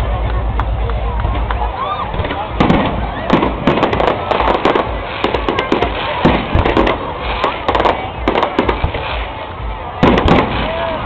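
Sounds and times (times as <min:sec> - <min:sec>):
fireworks bangs and crackles: 0:00.0 - 0:11.0.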